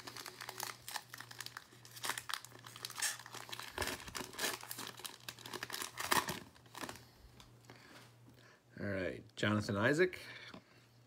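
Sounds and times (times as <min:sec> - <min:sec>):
wrapper crinkling as torn open: 0:00.0 - 0:07.0.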